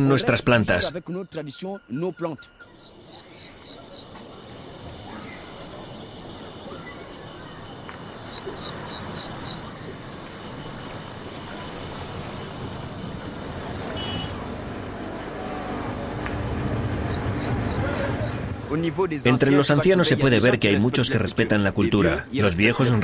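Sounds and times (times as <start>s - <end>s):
high insect drone: 2.5s - 18.6s
low rumble of street traffic: 2.6s - 23.0s.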